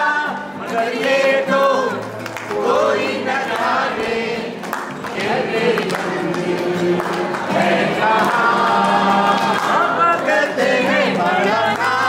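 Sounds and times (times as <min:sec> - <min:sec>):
group singing: 0:00.0 - 0:12.0
strummed acoustic guitar: 0:00.0 - 0:12.0
hand claps: 0:02.0 - 0:03.9, 0:04.5 - 0:12.0.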